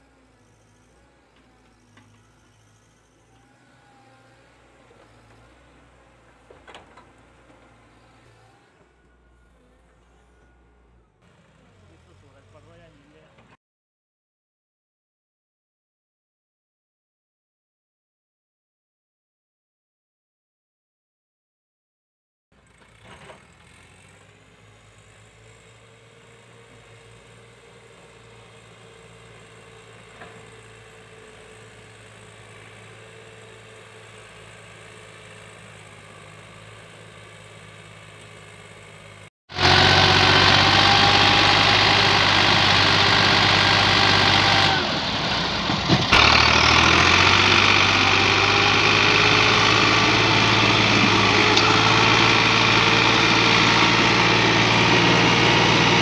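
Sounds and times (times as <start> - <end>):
tractor diesel engine labouring: 26.8 - 56.0.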